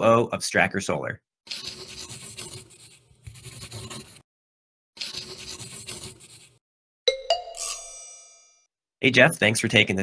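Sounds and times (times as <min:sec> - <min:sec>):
marker scratching on paper: 0:01.5 - 0:04.3, 0:05.0 - 0:06.6.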